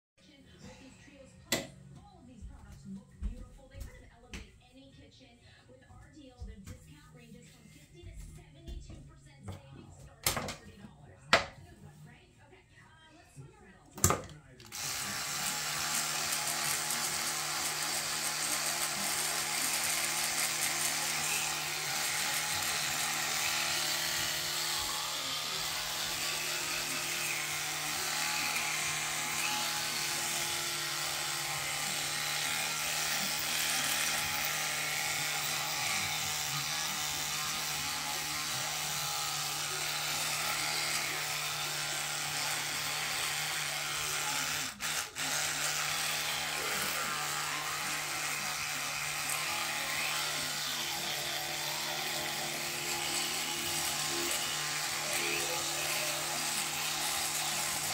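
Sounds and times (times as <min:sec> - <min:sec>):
electric toothbrush buzzing: 0:14.6 - 0:57.9.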